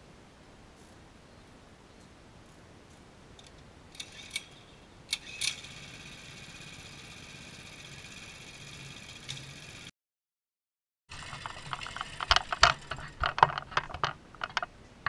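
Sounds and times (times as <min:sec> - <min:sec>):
small engine running: 0:05.2 - 0:09.9, 0:11.1 - 0:13.2.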